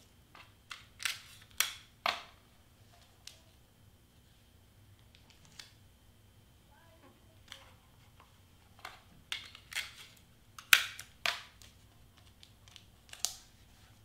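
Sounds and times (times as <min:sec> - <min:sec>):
cardstock and tape crackling: 0:07.4 - 0:13.7.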